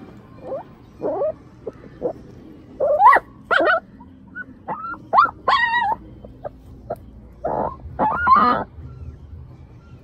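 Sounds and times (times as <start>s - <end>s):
puppy whimpering yelps: 0.4s - 1.4s, 2.8s - 3.8s, 4.4s - 6.5s, 7.4s - 10.0s.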